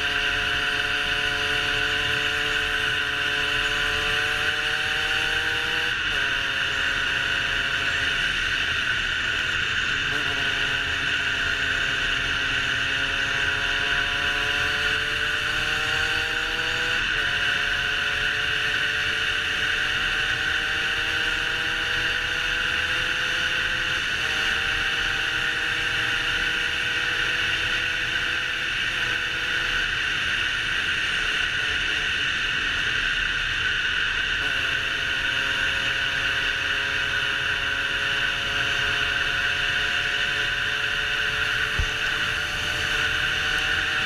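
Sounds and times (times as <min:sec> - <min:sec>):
two-stroke motorcycle engine: 0:00.0 - 0:44.0
wind rush on microphone: 0:41.5 - 0:43.1.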